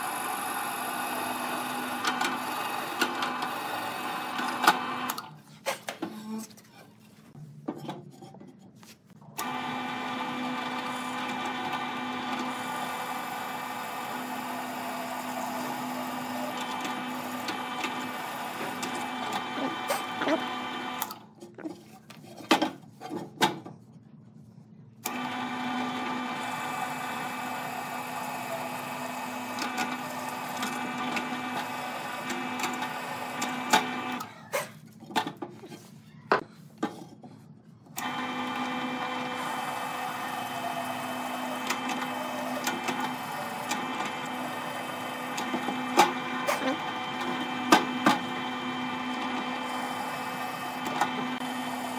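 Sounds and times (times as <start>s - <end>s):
drill press boring wood: 0.0s - 5.3s, 9.4s - 21.2s, 25.0s - 34.3s, 38.0s - 51.9s.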